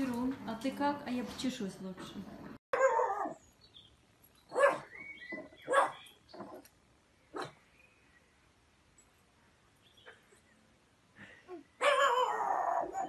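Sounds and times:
dog barking: 0:04.5 - 0:04.9, 0:05.7 - 0:06.0, 0:11.8 - 0:13.0.

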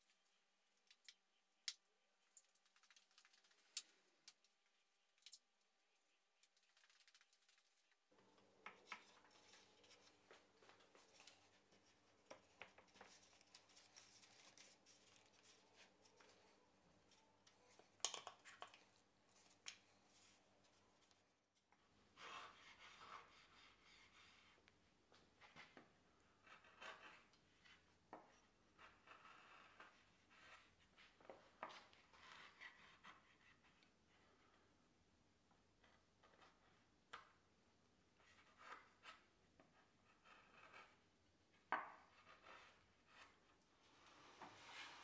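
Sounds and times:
chisel scraping wood: 0:26.2 - 0:30.8, 0:38.3 - 0:41.1, 0:42.0 - 0:43.4.

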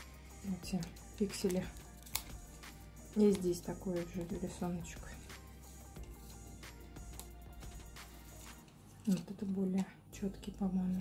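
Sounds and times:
quiet background music: 0:00.0 - 0:11.0.

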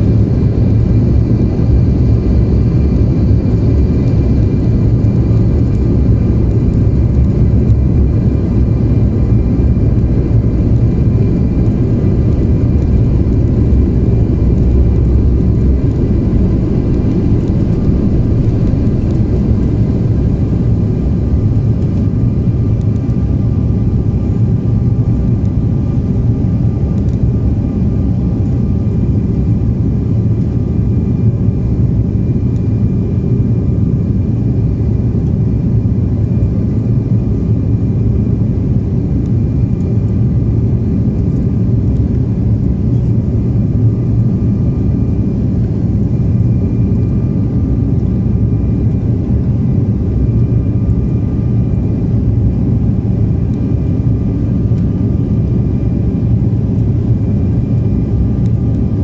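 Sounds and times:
faint whine tones: 0:00.0 - 0:33.6
jet engine low rumble: 0:00.0 - 0:59.0.

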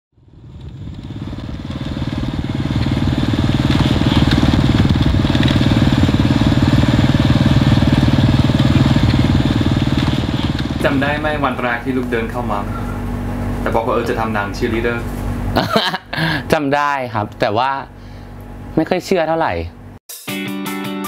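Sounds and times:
small motorcycle engine running: 0:00.2 - 0:15.8.

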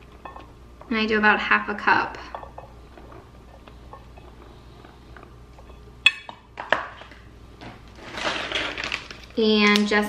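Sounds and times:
dishes clinking on countertop: 0:00.2 - 0:00.5, 0:02.2 - 0:04.4, 0:05.6 - 0:07.1
packet rustling: 0:06.6 - 0:10.0.

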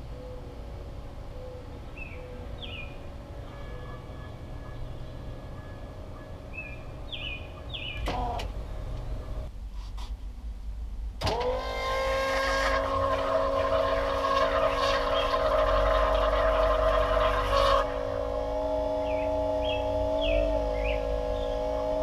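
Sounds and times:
birds chirping: 0:00.0 - 0:09.5, 0:18.8 - 0:22.0
electric pump motor whining: 0:11.2 - 0:22.0.

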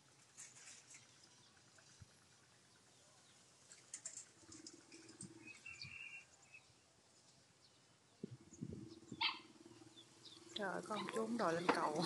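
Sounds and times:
faint bird chirp: 0:00.4 - 0:11.6.

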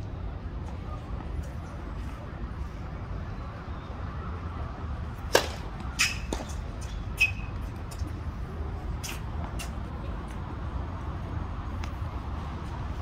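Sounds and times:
tennis racket hitting ball: 0:05.3 - 0:06.6.

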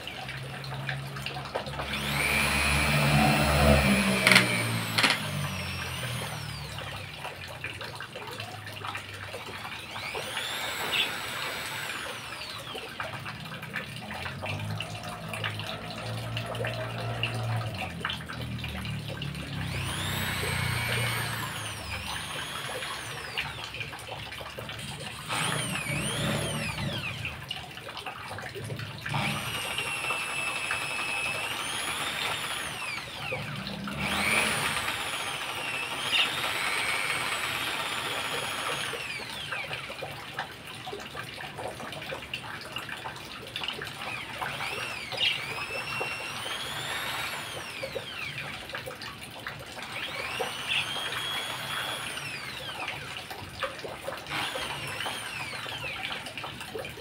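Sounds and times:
electric drill motor whine: 0:00.0 - 0:07.4, 0:09.4 - 0:13.6, 0:14.3 - 0:24.0, 0:24.7 - 0:27.4, 0:29.1 - 0:40.0, 0:43.9 - 0:48.7, 0:49.8 - 0:53.4, 0:54.3 - 0:56.3.

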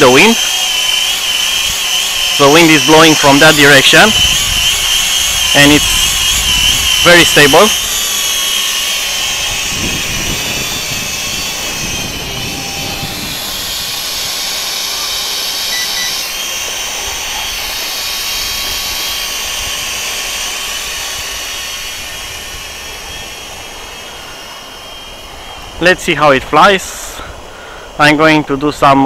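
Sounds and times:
drone propellers whining: 0:00.0 - 0:29.0
wind gusts on microphone: 0:02.8 - 0:14.5.

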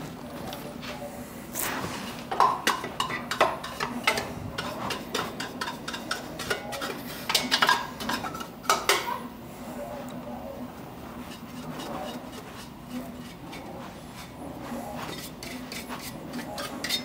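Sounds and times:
brush scrubbing metal drum: 0:11.0 - 0:17.0.

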